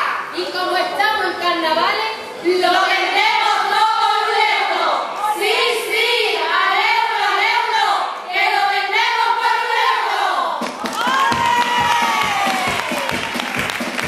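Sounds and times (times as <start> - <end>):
women singing together: 2.4 - 10.7
audience applause: 10.8 - 14.0.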